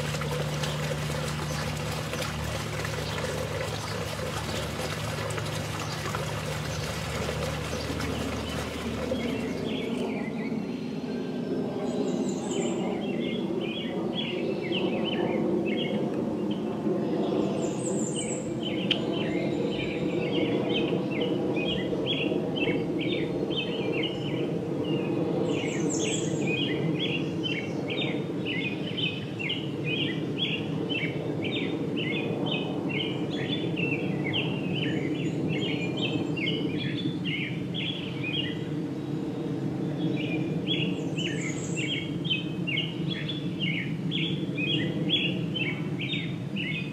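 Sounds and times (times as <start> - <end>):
small birds chirping: 0.0 - 10.1
water trickling: 0.0 - 10.1.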